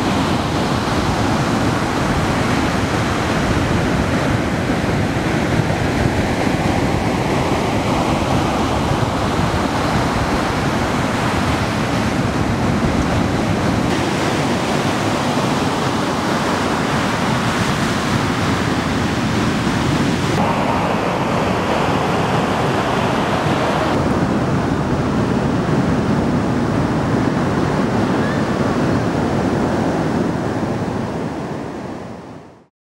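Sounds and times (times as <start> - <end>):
ocean surf breaking: 0.0 - 32.4.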